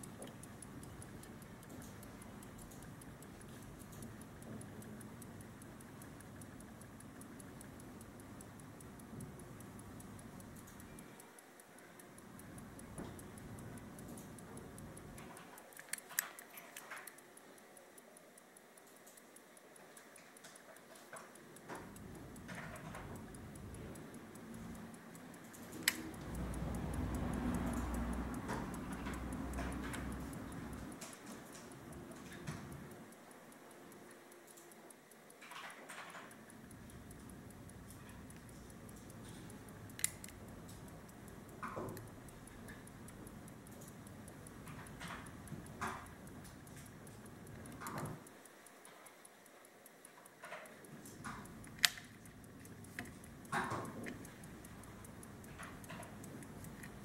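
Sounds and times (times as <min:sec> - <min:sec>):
pocket watch ticking: 0:00.0 - 0:57.0
watch handling clicks: 0:11.7 - 0:17.3, 0:20.0 - 0:26.4, 0:35.4 - 0:48.3, 0:50.2 - 0:57.0.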